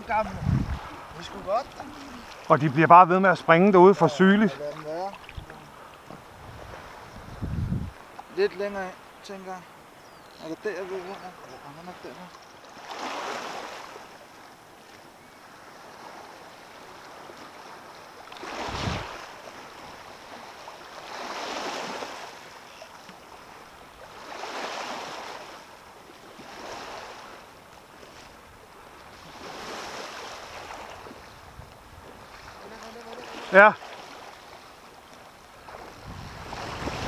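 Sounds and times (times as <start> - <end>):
waves washing over stones: 0.0 - 7.1, 15.8 - 37.0.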